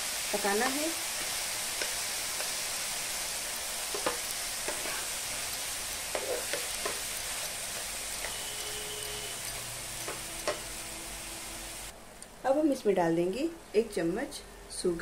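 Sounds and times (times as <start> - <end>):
food sizzling in a frying pan: 0.0 - 12.0
spatula scraping and tapping pan: 3.9 - 5.1, 6.1 - 7.1.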